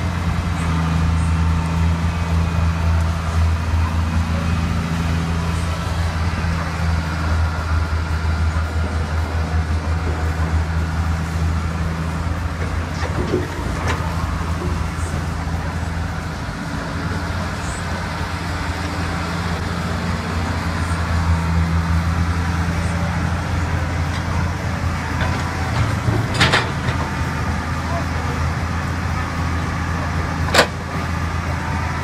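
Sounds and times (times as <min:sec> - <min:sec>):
excavator diesel engine running: 0:00.0 - 0:32.0.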